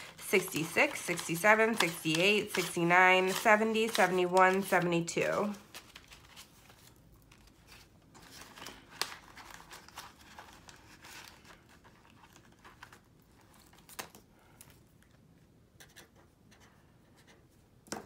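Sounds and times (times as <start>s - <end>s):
paper banknotes rustling: 0.0s - 14.2s.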